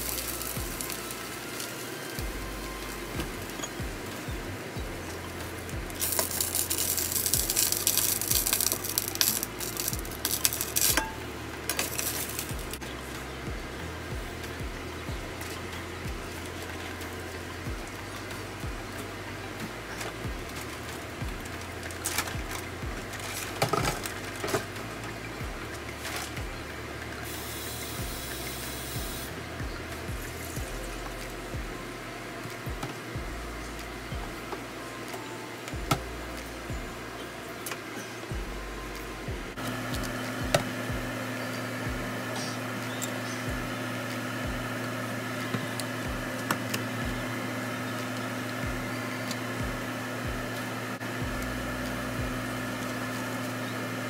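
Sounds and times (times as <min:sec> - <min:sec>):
low hum: 0:00.0 - 0:54.0
steady hiss: 0:00.0 - 0:54.0
soft low thumps: 0:00.6 - 0:00.8, 0:02.2 - 0:06.0, 0:10.0 - 0:10.2, 0:12.5 - 0:15.4, 0:16.0 - 0:16.5, 0:17.7 - 0:20.5, 0:21.2 - 0:21.6, 0:22.4 - 0:23.2, 0:23.8 - 0:25.8, 0:26.4 - 0:26.7, 0:29.0 - 0:31.9, 0:32.7 - 0:33.5, 0:34.1 - 0:34.5, 0:39.2 - 0:41.1, 0:41.9 - 0:42.1, 0:44.5 - 0:44.7, 0:49.6 - 0:50.5.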